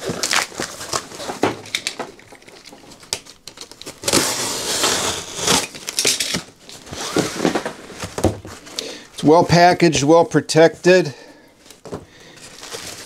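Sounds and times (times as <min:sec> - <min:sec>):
cardboard flaps rustling: 0:06.4 - 0:08.8.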